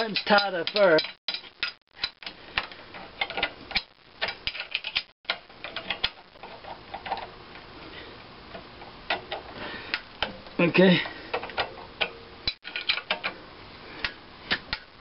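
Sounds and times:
wrench clicking on metal bolts: 0.0 - 6.2, 11.3 - 13.4.

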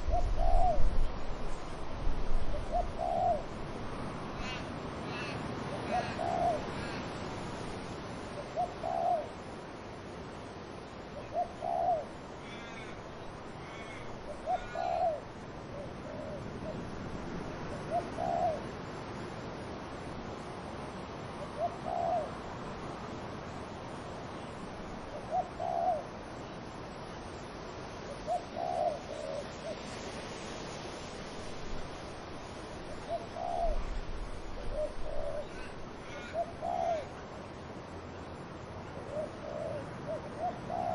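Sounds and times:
dove cooing: 0.0 - 1.0, 2.4 - 3.6, 4.4 - 7.2, 8.4 - 9.4, 11.2 - 13.0, 13.6 - 16.8, 17.7 - 18.7, 21.4 - 22.4, 25.1 - 26.2, 28.1 - 29.9, 32.8 - 37.2, 38.9 - 40.9
wind in trees: 0.0 - 40.9.

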